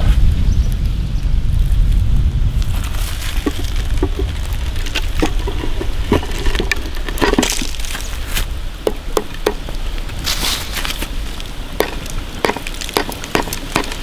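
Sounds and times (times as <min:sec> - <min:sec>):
salt grains pattering: 0:01.5 - 0:14.0
sticks knocking on salt crust: 0:03.3 - 0:07.8, 0:08.8 - 0:09.8, 0:11.8 - 0:14.0.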